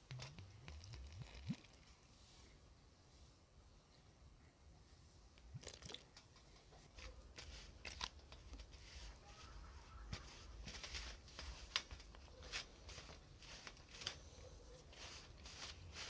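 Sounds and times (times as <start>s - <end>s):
hand mixing dough in plastic bowl: 5.9s - 16.0s.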